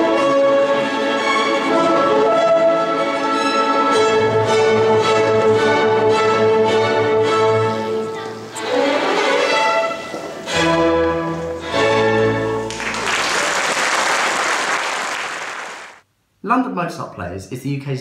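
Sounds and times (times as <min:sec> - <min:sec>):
chamber orchestra playing chords: 0:00.0 - 0:12.8
audience applause: 0:12.6 - 0:16.0.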